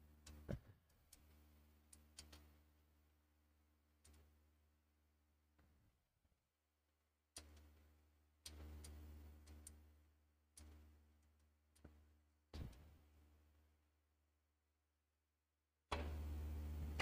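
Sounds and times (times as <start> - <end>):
low steady hum: 15.9 - 17.0.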